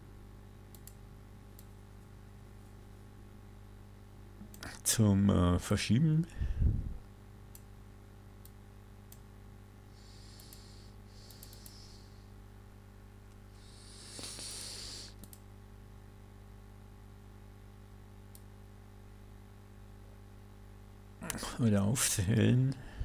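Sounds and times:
steady low hum: 0:00.0 - 0:23.0
computer mouse clicks: 0:00.7 - 0:01.8, 0:10.3 - 0:11.9, 0:15.1 - 0:15.5
short hissing rustles: 0:13.6 - 0:15.2.

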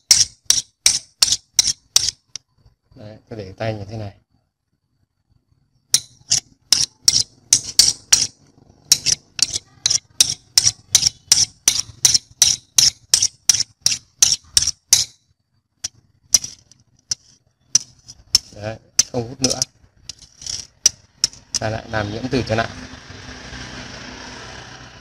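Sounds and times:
screwdriver tapping steel screws: 0:00.0 - 0:02.4, 0:06.0 - 0:15.2, 0:15.8 - 0:21.7.

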